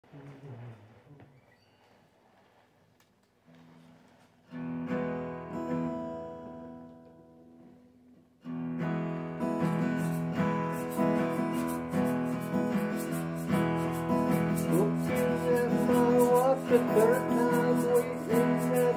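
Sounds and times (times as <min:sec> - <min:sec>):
acoustic guitar strumming: 0:04.4 - 0:18.9.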